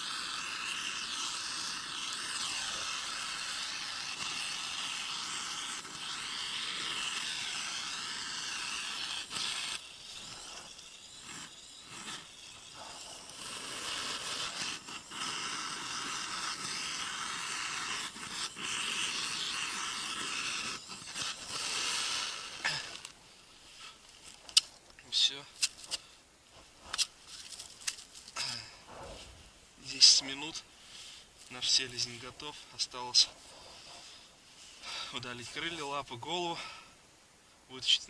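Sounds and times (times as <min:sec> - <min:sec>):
gas burner hissing: 0:00.0 - 0:26.0, 0:27.8 - 0:37.2.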